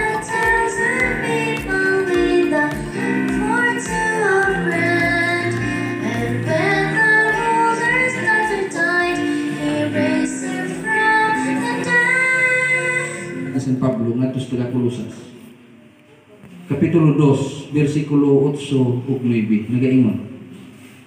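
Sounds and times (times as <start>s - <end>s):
girls singing into microphone: 0.0s - 13.4s.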